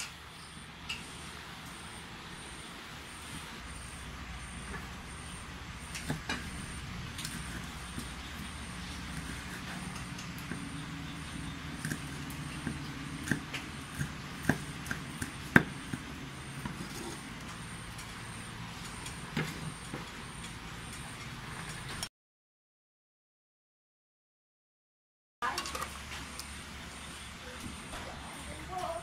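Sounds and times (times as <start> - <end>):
steady low hum: 0.0 - 22.1
cleaver chopping on wooden board: 6.0 - 17.2.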